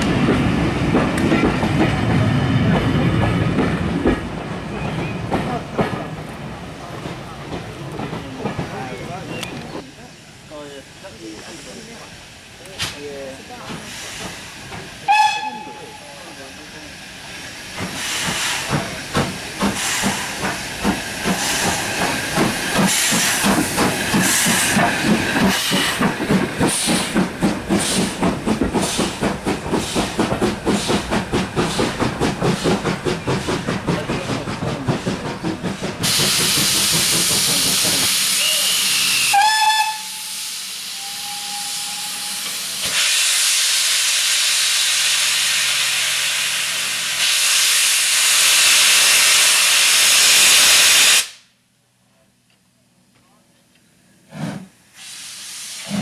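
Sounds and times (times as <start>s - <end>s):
train clattering into platform: 0.0s - 9.9s, 12.6s - 16.4s, 17.0s - 38.4s
steam hissing: 4.7s - 51.5s, 54.3s - 56.0s
steam locomotive whistle: 15.1s - 16.0s, 38.4s - 42.6s.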